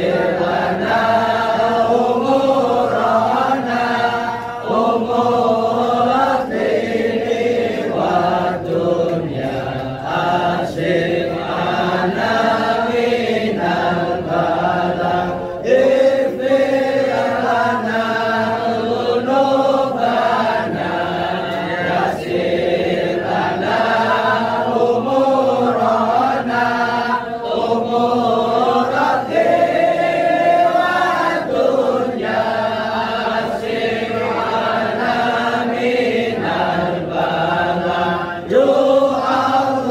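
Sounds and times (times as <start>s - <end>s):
group chanting devotional chant: 0.0s - 39.9s.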